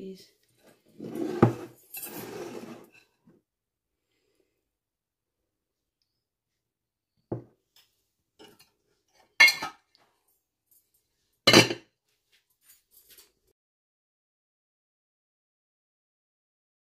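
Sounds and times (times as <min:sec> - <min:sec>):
glass dishware clinking: 0:09.4 - 0:09.9, 0:11.5 - 0:11.8.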